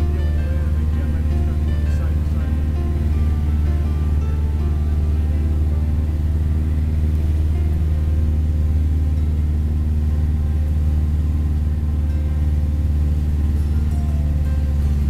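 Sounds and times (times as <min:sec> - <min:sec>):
propeller plane engine drone: 0:00.0 - 0:15.0.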